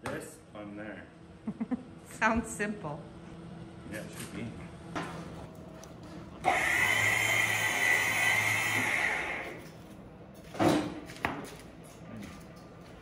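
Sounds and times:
small electric motor whirring: 6.4 - 9.7.

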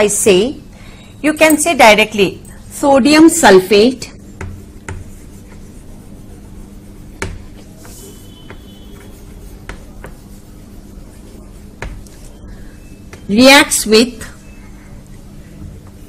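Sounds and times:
steady low hum: 0.0 - 16.0
chalk scratching on a blackboard: 4.2 - 12.4.

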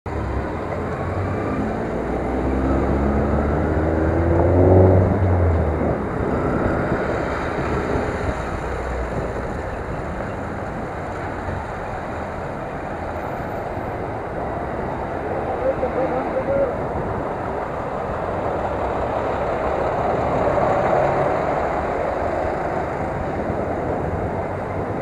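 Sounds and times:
road traffic rumble: 0.1 - 25.0
vehicle engine revving: 0.7 - 9.3.

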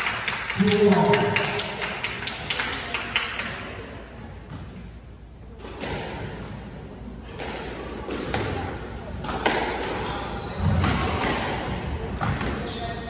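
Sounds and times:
low hall noise: 0.0 - 13.0
squash ball taps and knocks: 7.3 - 12.7.

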